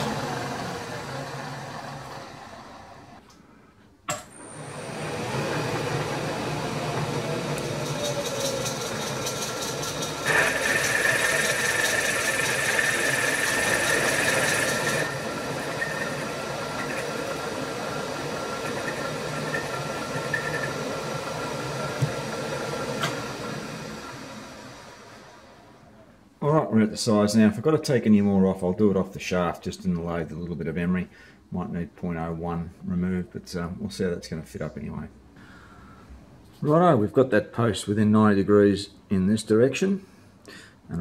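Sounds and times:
milling machine motor running: 0.0 - 3.2, 4.3 - 25.6
boring bar cutting whine: 4.1 - 25.6.

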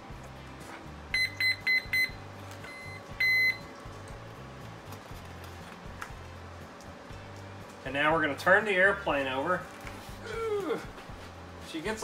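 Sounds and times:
electronic beeps from motors: 1.1 - 3.7.

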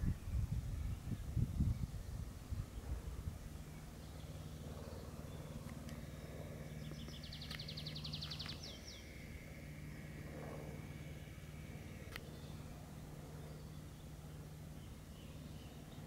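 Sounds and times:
low steady background hum: 0.0 - 16.0
songbird trilling: 3.6 - 9.6.

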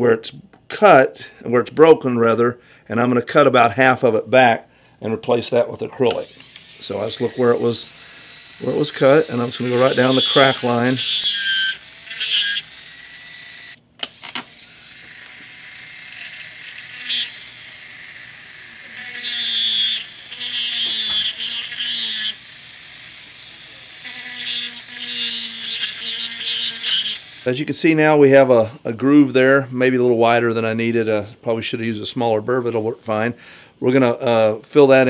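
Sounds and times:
burr grinding acrylic: 6.1 - 27.5.

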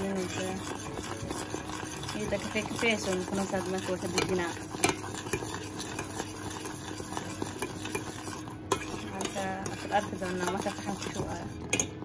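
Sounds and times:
spoon stirring in metal bowl: 0.0 - 12.0
clinks against bowl: 11.7 - 12.0.

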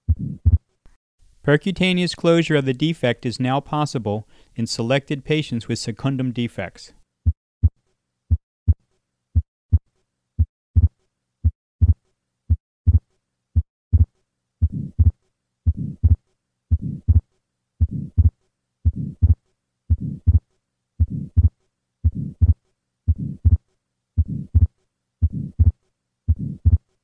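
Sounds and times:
heartbeat lub-dub: 0.0 - 0.6, 13.6 - 17.2, 17.8 - 18.3, 18.9 - 20.4, 21.0 - 21.5, 22.1 - 23.6, 24.2 - 26.8
systolic heart murmur: 0.0 - 0.6, 10.4 - 13.0, 13.6 - 17.2, 17.8 - 20.4, 21.0 - 23.6, 24.2 - 26.9.

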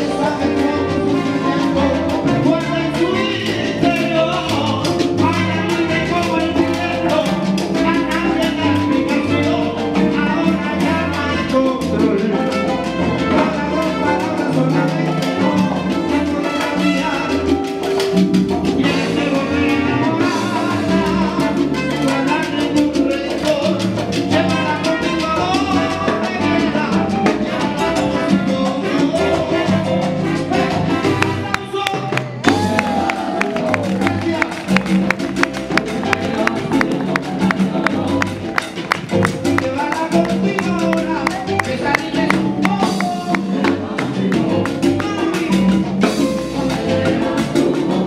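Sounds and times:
salsa band playing: 0.0 - 48.0
sharp regular percussion beat: 0.0 - 48.0
voices singing: 41.4 - 45.1, 46.4 - 48.0.

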